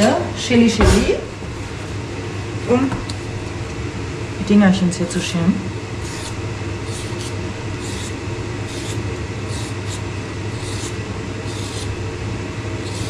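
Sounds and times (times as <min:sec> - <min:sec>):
steady low hum: 0:00.0 - 0:13.0
vegetable peeler scraping: 0:06.0 - 0:12.0, 0:12.8 - 0:13.0.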